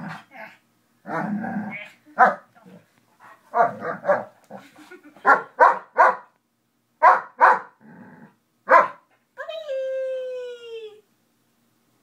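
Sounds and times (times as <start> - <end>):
dog barking: 2.2 - 2.5, 3.5 - 4.3, 5.2 - 6.3, 7.0 - 7.8, 8.7 - 9.1.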